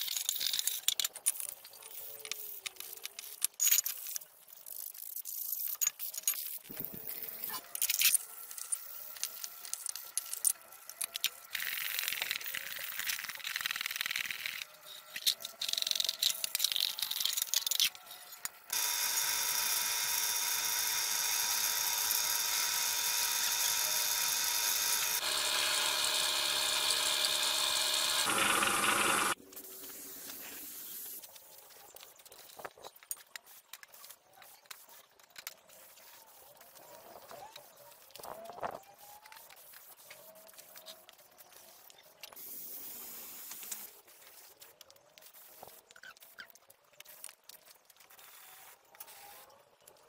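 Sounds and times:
whining multi-tone drone: 18.1 - 29.4
sandpaper and brush scrubbing metal: 38.9 - 46.4.

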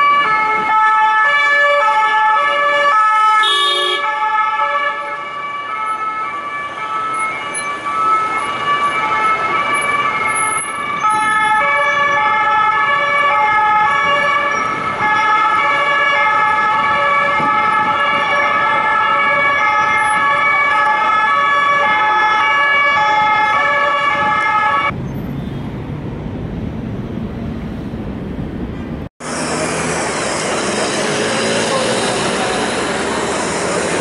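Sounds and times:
two-tone police sirens: 0.0 - 25.0
low city traffic rumble: 0.0 - 34.0.

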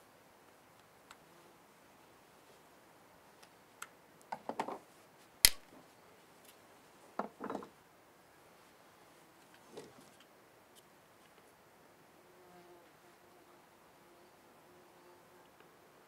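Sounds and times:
knife cutting branch clicks: 5.4 - 5.6.

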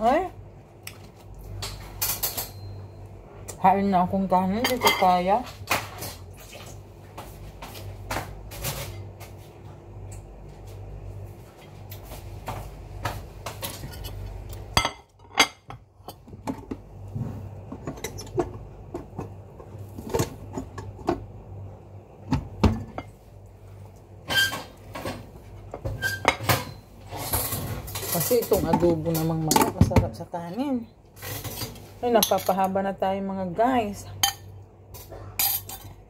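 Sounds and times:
dishes and utensils clinking: 1.6 - 2.8, 4.6 - 6.2, 24.3 - 29.9, 31.2 - 32.7, 34.2 - 36.0.

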